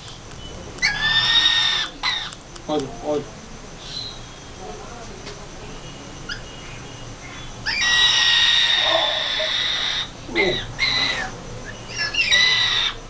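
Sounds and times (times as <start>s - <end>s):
cockatoo screeching: 0.8s - 2.4s, 7.6s - 13.0s.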